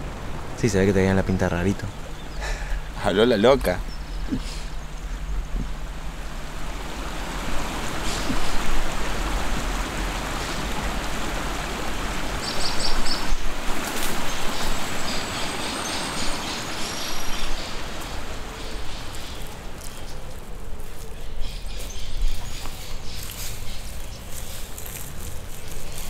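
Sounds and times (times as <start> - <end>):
steady rushing noise: 0.0 - 21.6.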